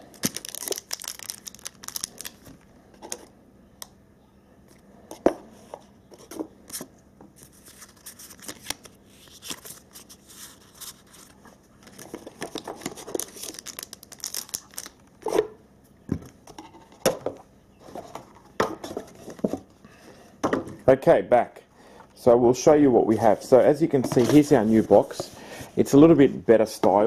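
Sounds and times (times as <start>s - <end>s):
packaging rustling: 0.0s - 2.7s, 7.4s - 15.0s.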